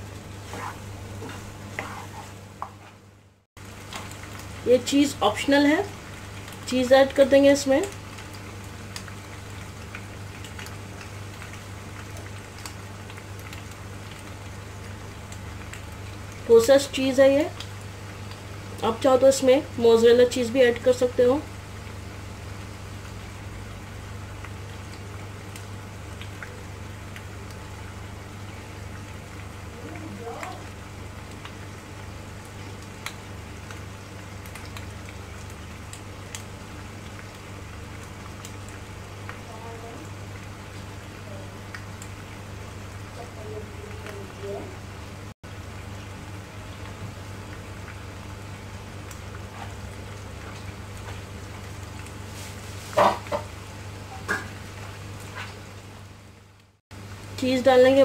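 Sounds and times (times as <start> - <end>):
low steady hum: 0.0 - 52.9
pasta sizzling in frying pan: 0.0 - 58.0
small pops and crackles: 3.6 - 4.6, 6.0 - 6.8, 7.8 - 16.5, 17.4 - 18.9, 24.3 - 42.5, 46.8 - 55.6.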